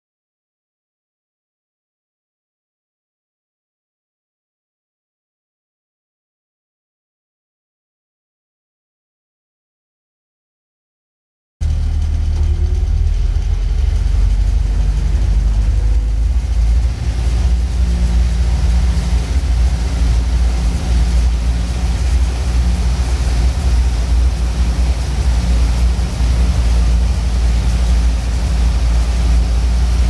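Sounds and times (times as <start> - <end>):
car engine running: 11.6 - 30.0.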